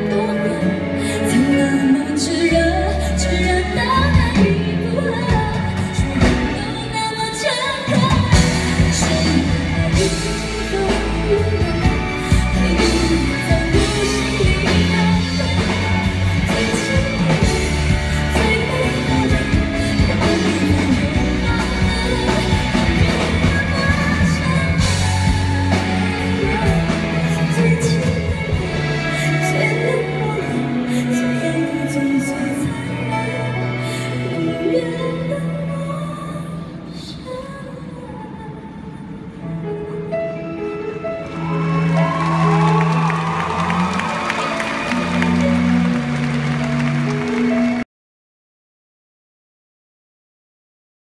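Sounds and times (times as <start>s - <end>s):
live band accompaniment: 0.0s - 37.8s, 38.5s - 47.8s
woman singing pop ballad: 0.0s - 40.6s.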